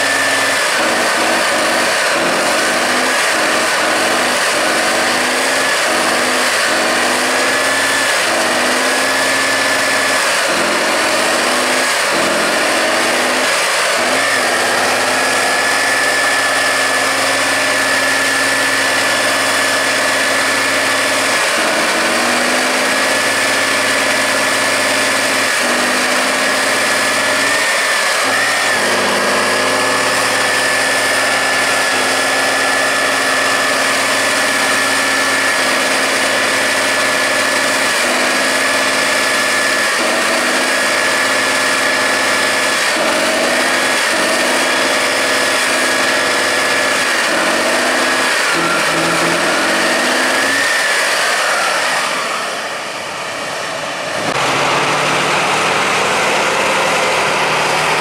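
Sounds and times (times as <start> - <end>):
diesel truck engine labouring: 0.0 - 58.0
steady high whine: 0.0 - 58.0.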